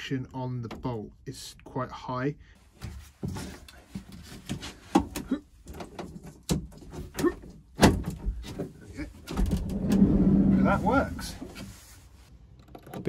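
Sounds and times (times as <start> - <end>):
sliding door and latch clunking: 5.0 - 11.7.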